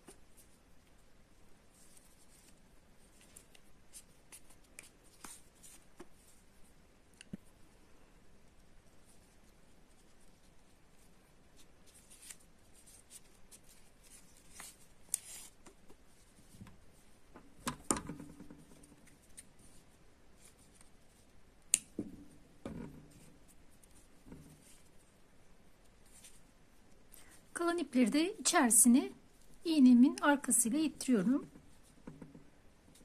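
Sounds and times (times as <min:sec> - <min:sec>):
faint rustling of yarn: 0:00.0 - 0:33.0
soft clicks of needle: 0:07.1 - 0:07.5, 0:21.7 - 0:22.0.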